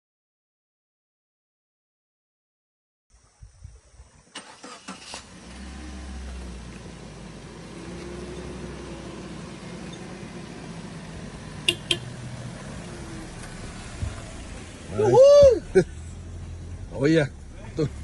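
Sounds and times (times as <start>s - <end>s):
car engine running: 4.8s - 18.0s.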